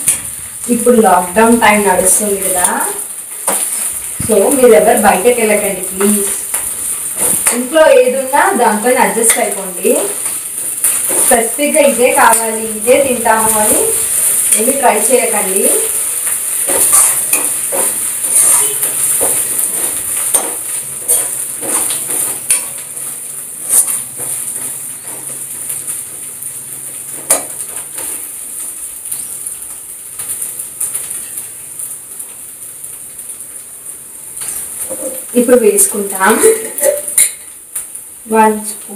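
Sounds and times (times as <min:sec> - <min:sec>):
onions sizzling in hot oil: 0:00.0 - 0:38.9
metal spoon scraping a pan: 0:09.0 - 0:25.4, 0:27.1 - 0:28.2.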